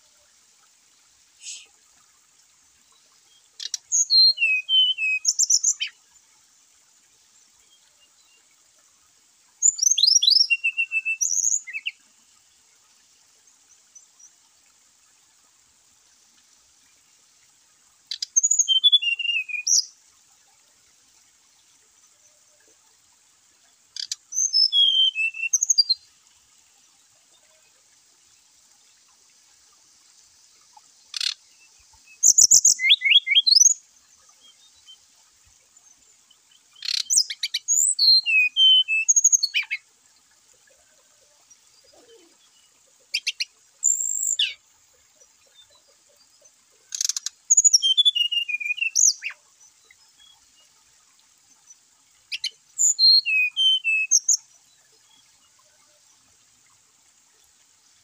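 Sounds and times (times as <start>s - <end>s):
flycatchers whistling song: 1.4s - 1.7s, 3.6s - 6.0s, 9.6s - 12.0s, 18.1s - 19.9s, 24.0s - 26.0s, 31.1s - 33.8s, 36.8s - 39.8s, 43.1s - 44.6s, 46.9s - 49.4s, 52.3s - 54.5s.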